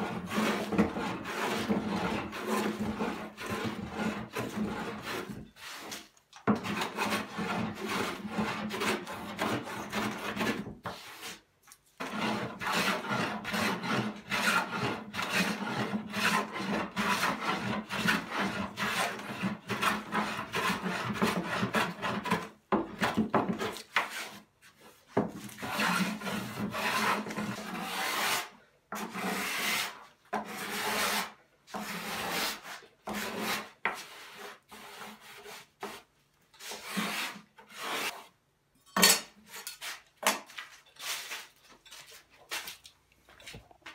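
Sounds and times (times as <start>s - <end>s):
hand plane rasping on wood: 0.0s - 11.4s, 12.0s - 24.4s, 25.4s - 36.0s.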